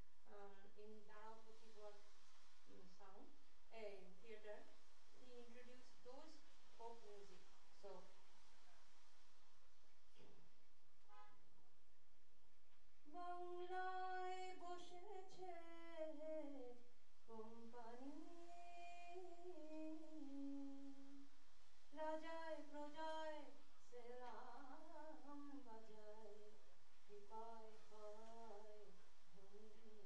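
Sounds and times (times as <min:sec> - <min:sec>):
woman singing unaccompanied: 0:13.0 - 0:21.3, 0:21.9 - 0:30.0.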